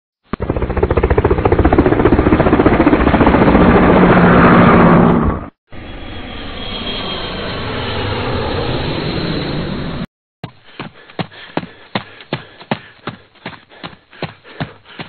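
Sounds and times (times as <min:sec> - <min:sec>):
helicopter rotor chopping: 0:00.3 - 0:05.5
aircraft engine with high whine: 0:00.3 - 0:15.0.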